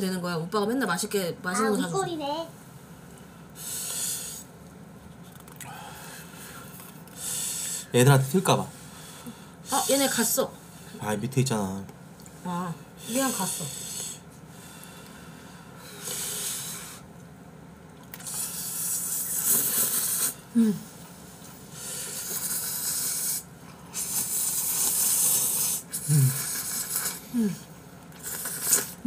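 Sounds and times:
noodles being slurped: 18.0s - 20.4s, 22.0s - 27.2s, 28.2s - 29.0s.

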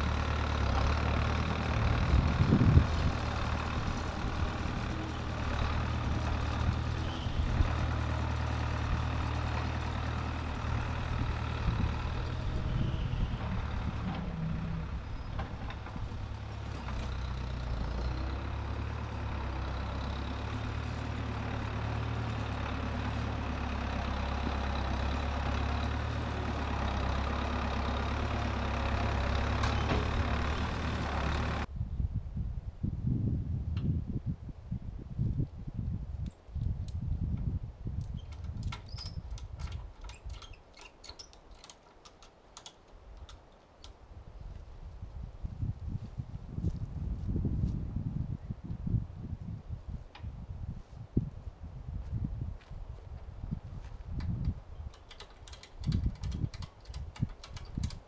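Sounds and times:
backhoe engine running: 0.0s - 31.7s, 53.6s - 58.0s.

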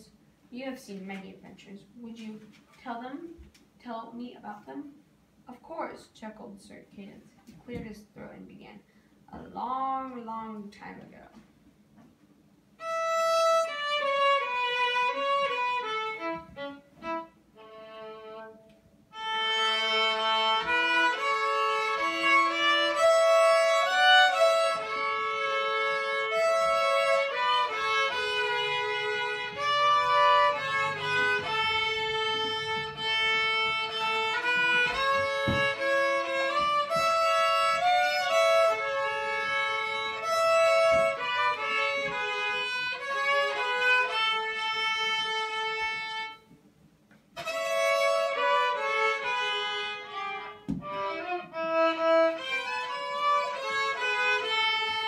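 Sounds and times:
solo violin melody: 12.8s - 46.6s, 47.4s - 55.0s.

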